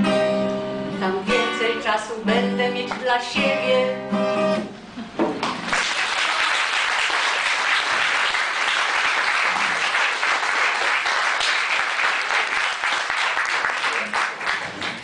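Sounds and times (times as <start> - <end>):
audience clapping: 5.4 - 15.0.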